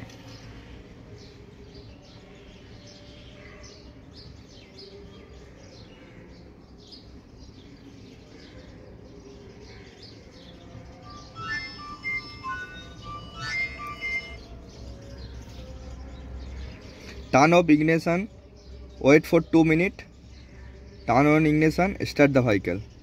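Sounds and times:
small birds chirping: 0.0 - 23.0
electronic beeping tune: 11.1 - 14.4.

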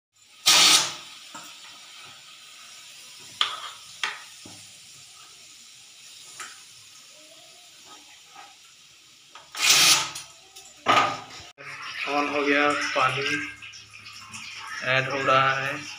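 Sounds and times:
pressure cooker hissing blast: 0.2 - 1.4, 9.4 - 10.2
soft steady steam hiss: 0.2 - 10.8.

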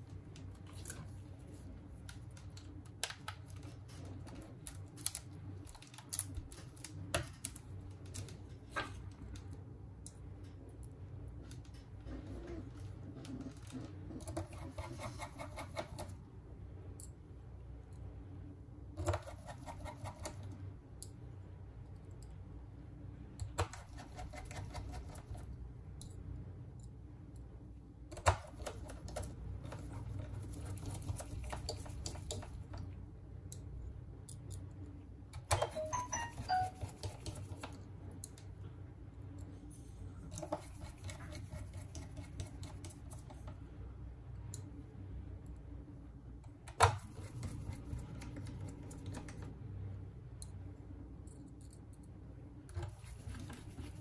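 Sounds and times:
hand tools clicking and tapping: 35.4 - 37.7.

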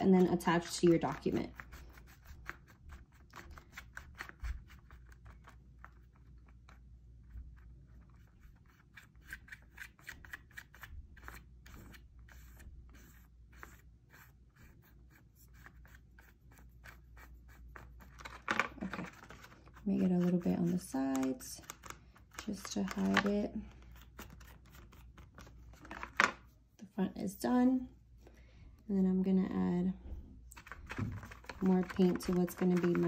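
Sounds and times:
paintbrush scratching on plastic: 0.0 - 27.8, 30.5 - 33.0.

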